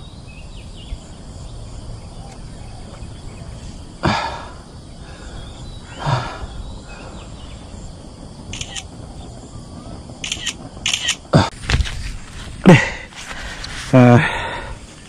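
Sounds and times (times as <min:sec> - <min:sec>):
outdoor background noise: 0:00.0 - 0:15.0
man exhaling heavily: 0:04.0 - 0:07.2, 0:12.6 - 0:14.8.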